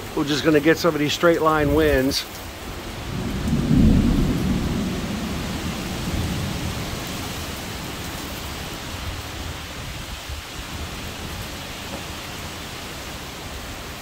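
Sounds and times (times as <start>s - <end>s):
heavy rain: 0.0s - 14.0s
wind: 0.0s - 14.0s
low thunder rumble: 2.9s - 8.2s.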